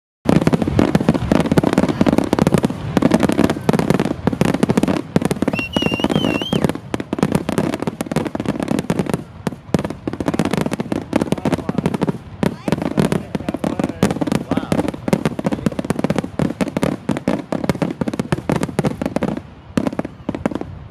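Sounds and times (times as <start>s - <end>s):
fireworks banging and crackling: 0.2s - 20.9s
firework whistle: 3.0s - 7.1s.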